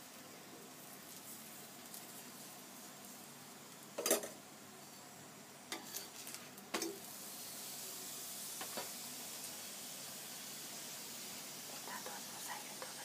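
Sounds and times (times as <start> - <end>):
flatbread sizzling in fat: 0.0 - 13.0
cutlery clinking on metal: 4.0 - 4.4, 5.7 - 7.0.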